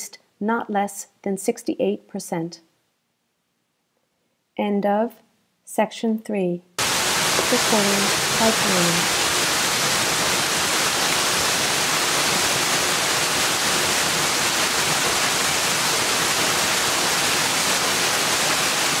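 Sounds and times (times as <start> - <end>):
waterfall rushing onto rock: 6.8 - 19.0.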